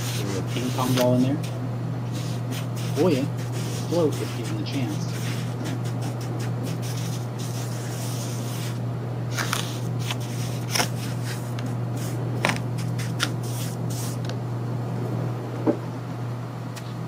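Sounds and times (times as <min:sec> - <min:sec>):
spoon stirring wet sand: 0:02.4 - 0:07.6
low hum: 0:05.1 - 0:16.8.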